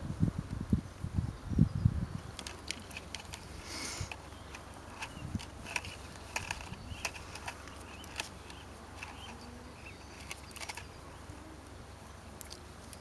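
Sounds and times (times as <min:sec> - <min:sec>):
wires clicking and rustling: 0:02.2 - 0:11.0.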